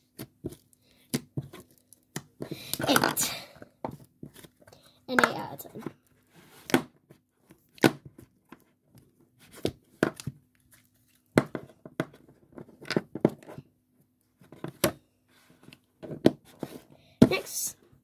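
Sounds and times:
plastic tubs clicking and knocking: 0:05.1 - 0:05.9.

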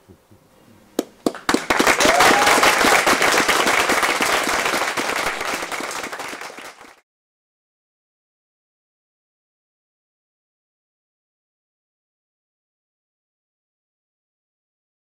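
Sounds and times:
audience applauding: 0:01.2 - 0:07.0
person whooping: 0:01.9 - 0:03.0.

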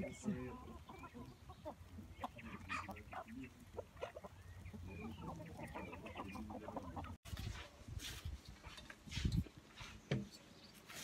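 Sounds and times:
hens and roosters clucking: 0:00.0 - 0:07.4.

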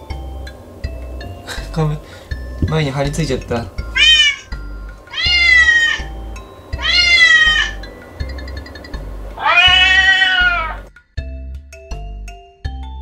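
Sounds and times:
background music: 0:00.0 - 0:13.0
cat meowing: 0:03.9 - 0:06.2, 0:06.8 - 0:07.8, 0:09.4 - 0:10.9.

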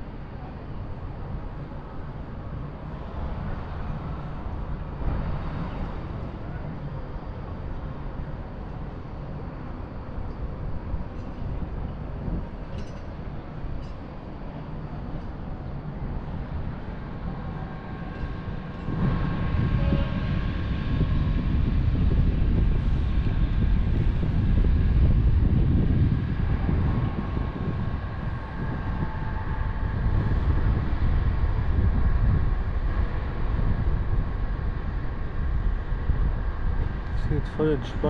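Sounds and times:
fairground ride rumble: 0:00.0 - 0:38.0.

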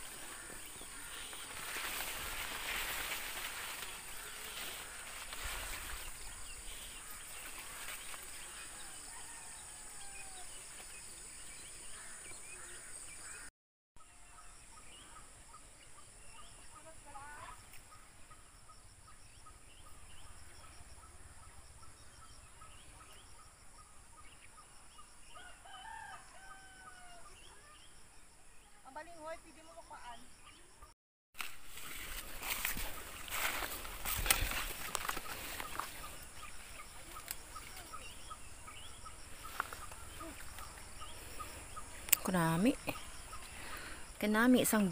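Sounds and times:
rooster crowing: 0:08.4 - 0:10.7, 0:25.3 - 0:27.4.

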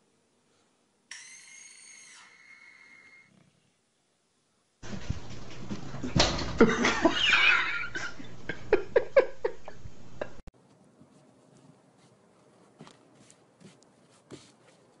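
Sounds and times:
faint soft footsteps: 0:04.8 - 0:06.6, 0:09.8 - 0:15.0
pets scuffling on wooden floor: 0:04.8 - 0:06.7.

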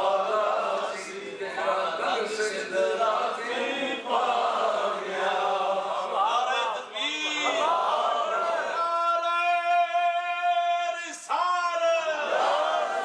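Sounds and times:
men chanting devotional recitation: 0:00.0 - 0:13.0.

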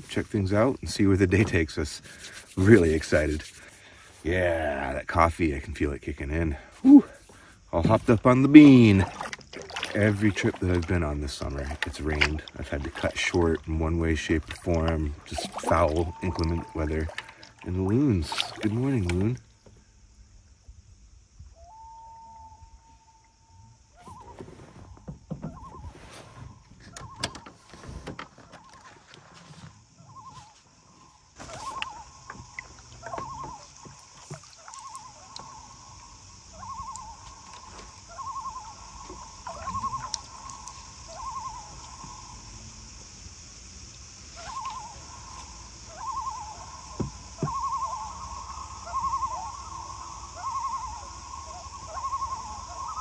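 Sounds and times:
loon calling: 0:06.5 - 0:07.6, 0:08.6 - 0:19.4, 0:21.5 - 0:24.7, 0:25.4 - 0:27.6, 0:30.0 - 0:42.5, 0:44.3 - 0:53.0.

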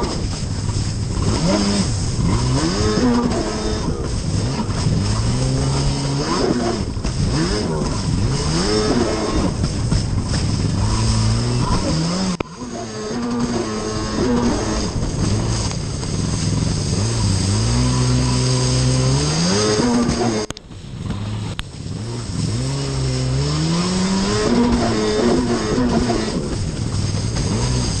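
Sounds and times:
jet ski engine revving: 0:00.0 - 0:28.0.

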